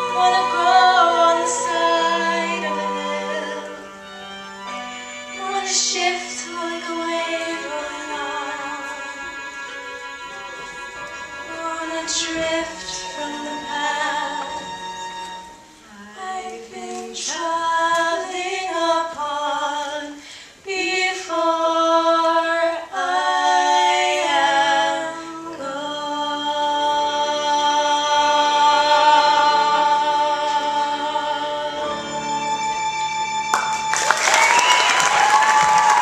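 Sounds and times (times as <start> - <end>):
two women singing duet: 0.0 - 4.1, 5.3 - 9.5, 11.4 - 15.0, 15.8 - 32.7.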